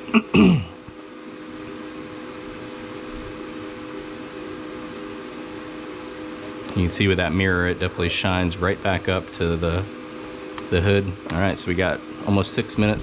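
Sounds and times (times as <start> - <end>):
laser cutter fans humming: 0.0 - 13.0
steady machine tones: 0.0 - 13.0.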